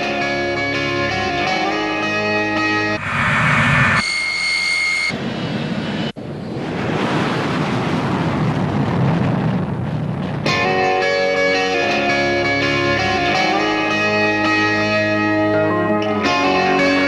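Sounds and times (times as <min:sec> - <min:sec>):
jet engines rushing: 0:02.6 - 0:07.8
steady high tone: 0:02.7 - 0:05.2
low rumble: 0:02.8 - 0:05.6.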